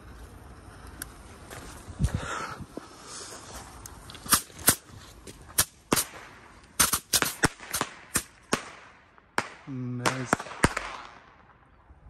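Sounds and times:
firecrackers cracking and popping: 3.8 - 11.6.

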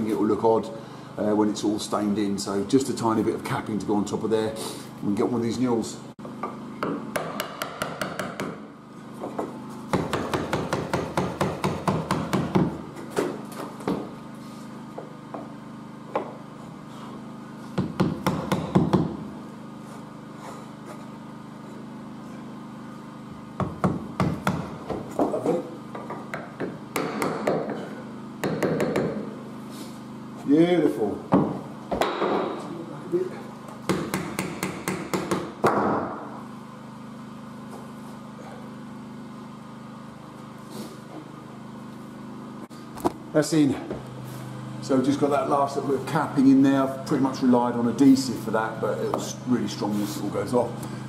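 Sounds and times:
hammer tapping wood: 6.4 - 8.6, 9.9 - 12.8, 17.8 - 19.2, 23.6 - 27.8, 28.4 - 29.2, 33.9 - 36.0.

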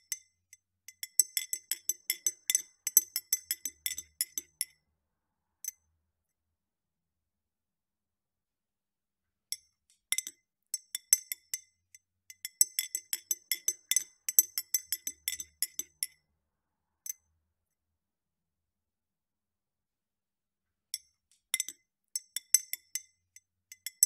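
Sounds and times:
teaspoon clinking against glass: 0.9 - 4.7, 12.4 - 16.1.

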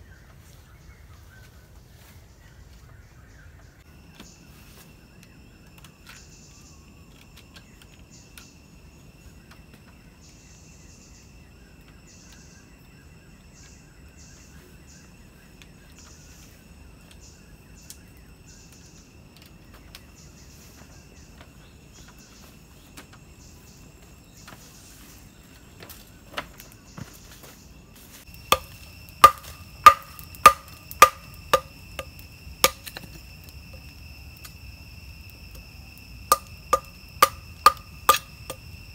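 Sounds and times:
insects trilling: 0.0 - 38.9
tool striking wood: 28.5 - 33.2, 36.3 - 38.6.

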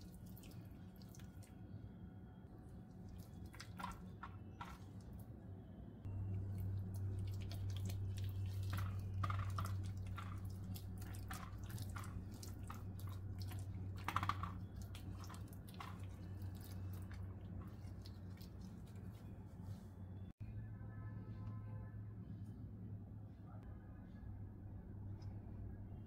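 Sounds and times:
wet squelches and sticky clicks: 0.0 - 1.6, 2.9 - 5.2, 6.2 - 19.3
steady low hum: 0.0 - 20.6.

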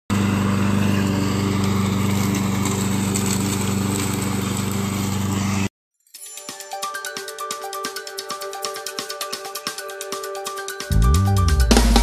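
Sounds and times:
lawn mower engine running: 0.1 - 5.7.

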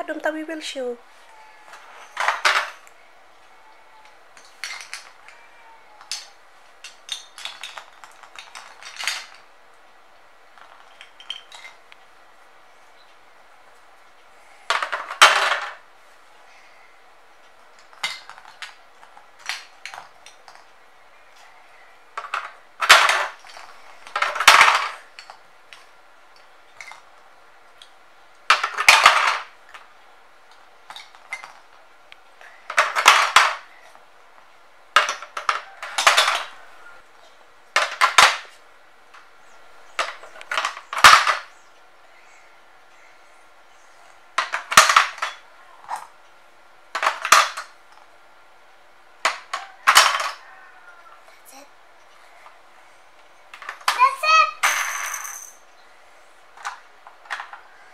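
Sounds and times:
plastic blocks clattering: 1.7 - 2.8, 4.4 - 5.3, 6.0 - 9.5, 10.6 - 11.8, 14.7 - 15.8, 17.7 - 20.7, 22.2 - 25.8, 28.5 - 29.9, 32.7 - 33.7, 35.0 - 36.6, 37.8 - 38.5, 46.9 - 47.7, 56.6 - 57.6.

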